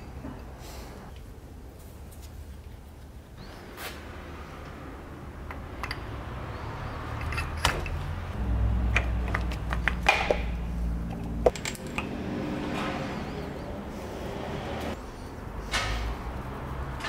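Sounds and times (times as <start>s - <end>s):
metal clinks and knocks: 7.1s - 8.1s, 8.9s - 12.2s.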